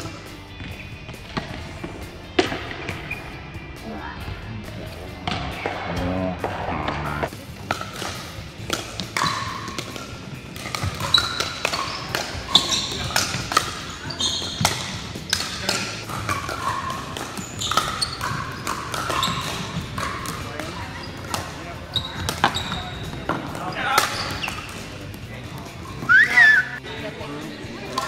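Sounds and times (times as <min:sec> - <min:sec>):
paddles hitting plastic ball: 0:07.6 - 0:25.1
shoes on hard court: 0:14.1 - 0:15.4.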